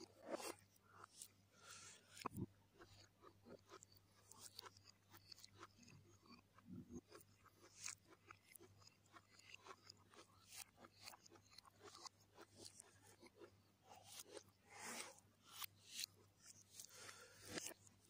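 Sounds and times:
chewing and lip smacking: 2.0 - 14.6.

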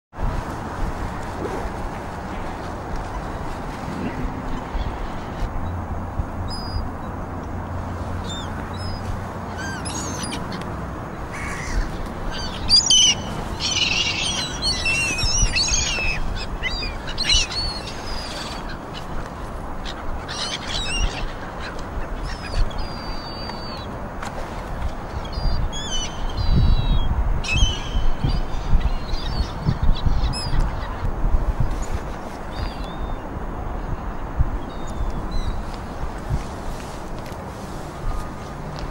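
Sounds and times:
wind rustling fleece cloth: 0.1 - 38.9
birds chirping and calling: 6.5 - 7.0, 8.2 - 23.9, 25.1 - 33.2.

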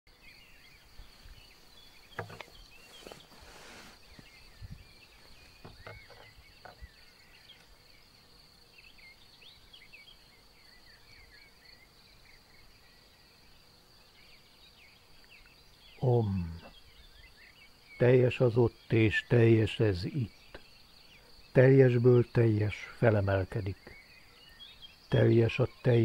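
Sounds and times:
birds chirping: 0.1 - 26.0
insect trill: 0.1 - 26.0
sharp knocks: 2.2 - 2.5.

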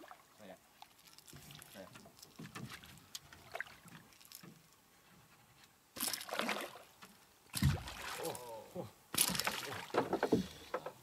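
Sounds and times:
fish thrashing and splashing: 6.0 - 6.8.

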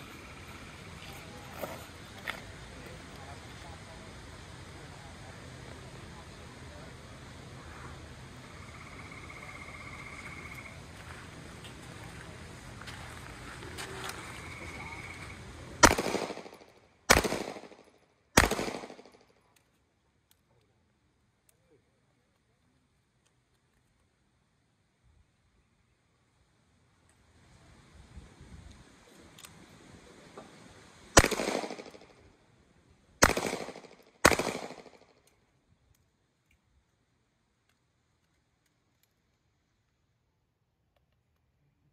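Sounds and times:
handgun shots with echo: 15.8 - 19.2, 31.2 - 32.1, 33.2 - 35.1.

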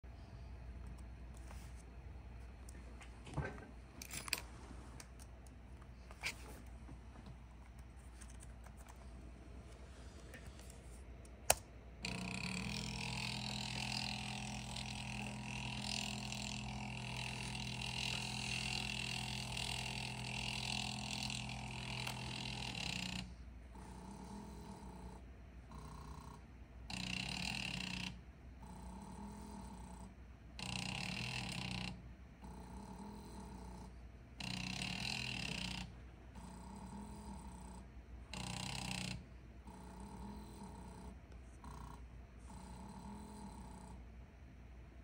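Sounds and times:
stepper motors buzzing whine: 12.0 - 42.0.

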